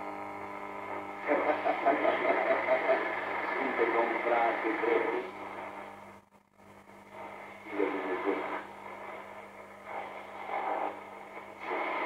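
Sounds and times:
steady low hum: 0.0s - 12.0s
radio signal: 0.2s - 6.0s, 6.8s - 12.0s
muffled broadcast voice on radio: 1.0s - 5.9s, 7.1s - 9.3s, 9.9s - 12.0s.

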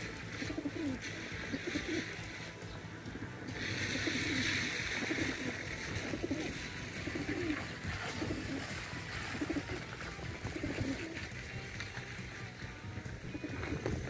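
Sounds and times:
pigeons cooing: 0.0s - 14.0s
rushing hiss: 3.5s - 7.5s.

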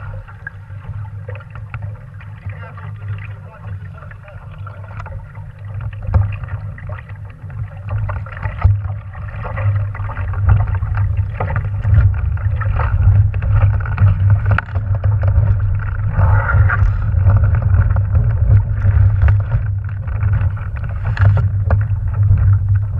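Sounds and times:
water lapping against hull: 0.0s - 22.9s
wind buffeting microphone: 8.3s - 22.9s.

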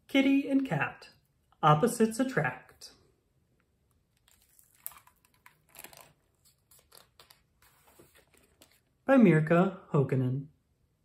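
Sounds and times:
book pages turning: 4.1s - 9.0s
paper rustles: 4.2s - 8.9s.

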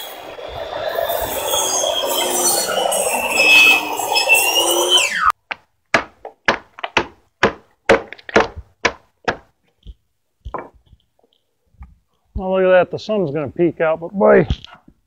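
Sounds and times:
circular saw winding down: 0.0s - 5.3s
sharp wooden knocks: 5.5s - 11.0s.

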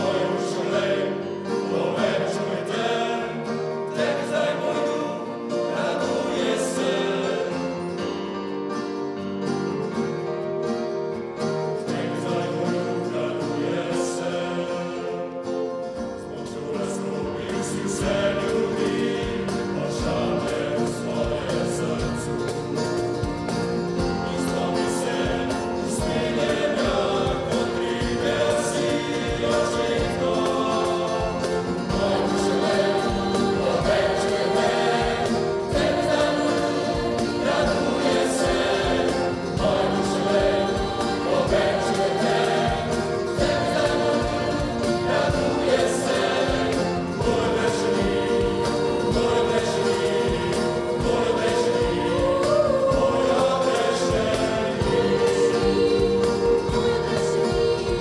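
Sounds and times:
choir singing: 0.0s - 58.0s
instruments accompanying: 0.0s - 58.0s
light percussion beat: 17.5s - 58.0s.

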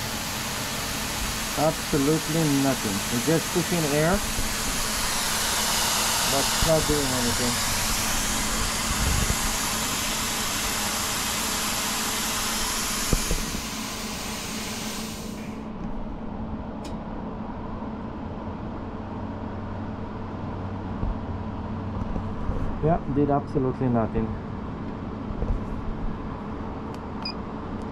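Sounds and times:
compressed air hissing: 0.0s - 15.7s
machine hum: 0.0s - 27.9s.

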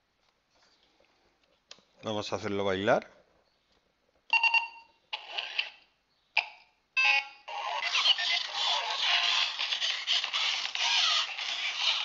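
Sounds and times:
dance music from small speaker: 7.6s - 12.0s.

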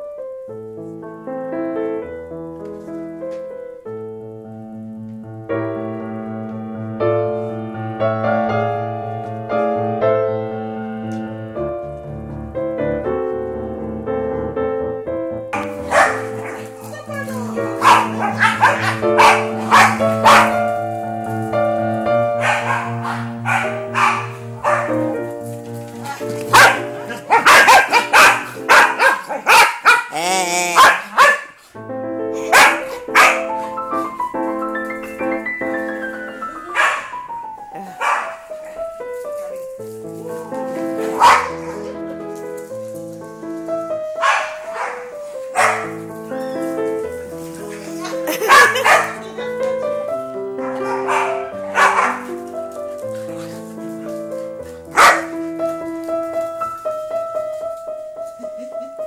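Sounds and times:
slow piano music: 0.0s - 59.0s
dogs barking: 15.6s - 25.3s, 26.1s - 31.6s, 32.4s - 34.2s, 36.6s - 39.6s, 40.3s - 42.0s, 44.0s - 49.9s, 50.5s - 55.8s.

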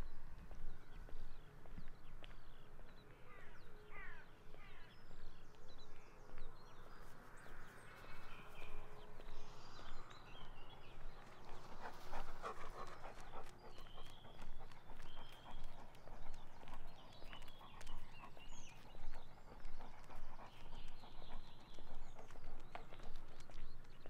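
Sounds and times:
small birds chirping: 0.0s - 24.0s
footsteps walking: 0.3s - 3.0s, 5.5s - 12.4s.

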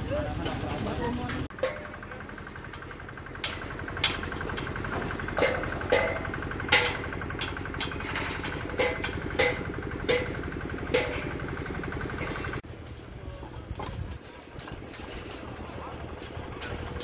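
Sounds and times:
machine engine running: 0.0s - 17.0s
sharp metallic clanks: 1.4s - 12.6s.

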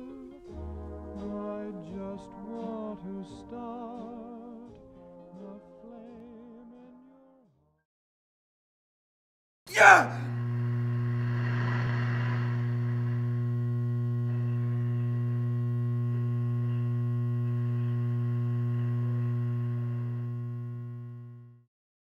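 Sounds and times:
low electrical hum: 9.7s - 21.6s.

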